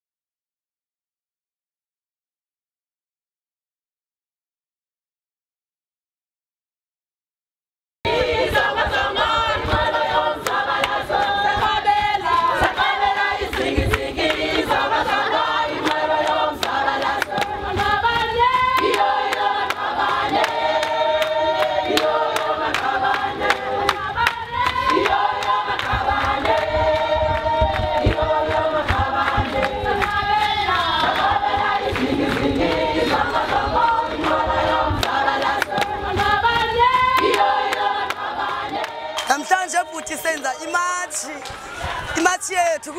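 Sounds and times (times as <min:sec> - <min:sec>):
group singing in harmony: 0:08.1 - 0:40.3, 0:41.1 - 0:42.2.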